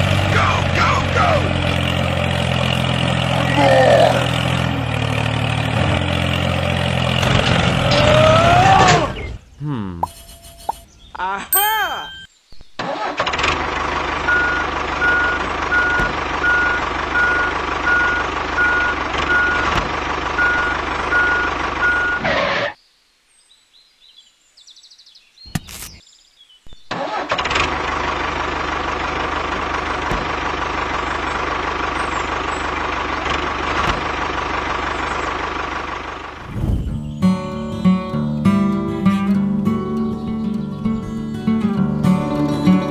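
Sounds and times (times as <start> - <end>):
tractor engine running: 0.0 - 11.0, 12.0 - 22.6, 26.9 - 42.9
repeating beeping tone: 10.0 - 10.8, 11.5 - 12.3.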